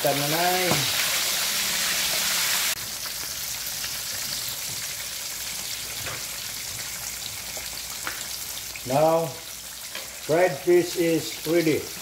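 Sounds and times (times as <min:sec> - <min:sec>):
fish sizzling in hot oil: 0:00.0 - 0:12.0
oil crackling and popping: 0:02.1 - 0:10.4.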